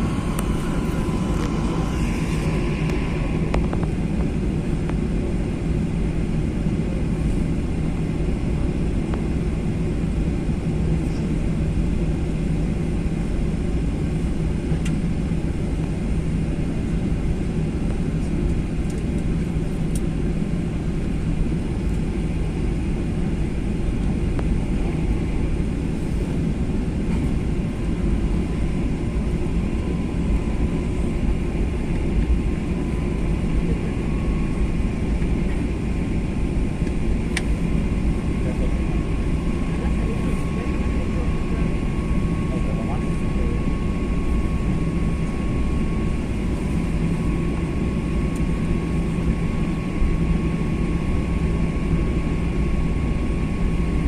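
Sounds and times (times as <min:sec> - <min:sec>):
faint high tone: 0:00.0 - 0:04.5
jet engine rumble: 0:00.0 - 0:54.0.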